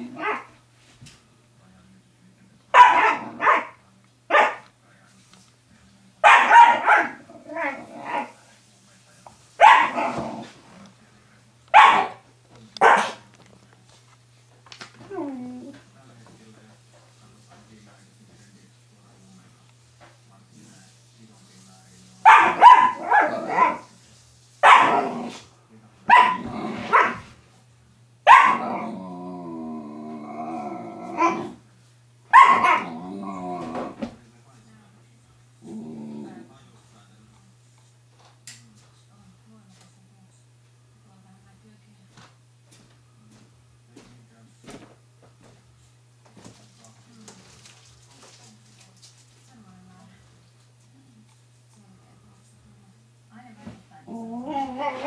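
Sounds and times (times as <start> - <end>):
puppy barking: 0.1 - 0.6, 2.7 - 4.7, 6.2 - 8.4, 9.6 - 10.2, 11.7 - 12.2, 12.8 - 13.3, 22.2 - 23.9, 24.6 - 25.2, 26.1 - 27.2, 28.3 - 28.8, 32.3 - 32.9
puppy whining: 15.0 - 15.8, 54.1 - 55.0.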